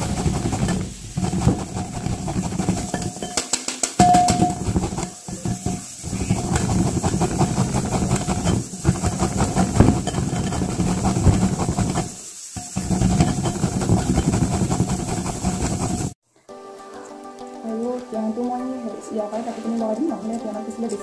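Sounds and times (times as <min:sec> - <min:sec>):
spoon scraping glass bowl: 0:00.0 - 0:03.4, 0:04.0 - 0:16.2
spoon clinking against glass: 0:02.8 - 0:04.7.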